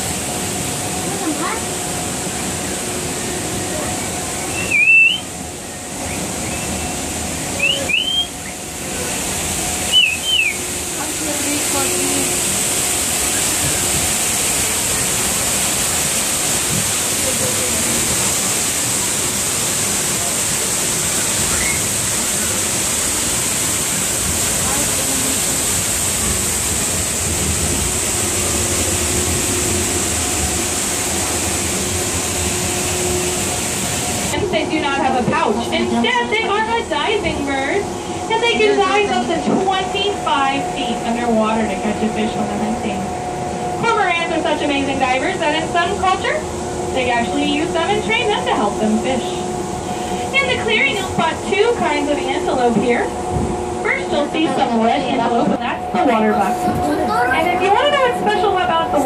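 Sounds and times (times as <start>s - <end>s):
monorail car running noise: 0.0s - 59.0s
steady rushing hiss: 0.0s - 59.0s
two-note whistles: 4.4s - 5.3s, 7.6s - 8.6s, 9.9s - 10.6s, 21.5s - 21.9s.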